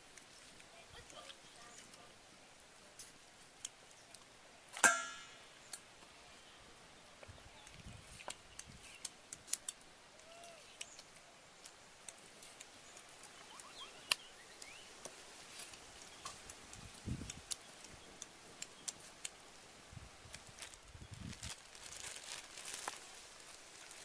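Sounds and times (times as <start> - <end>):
faint bird chirps: 12.8 - 15.0.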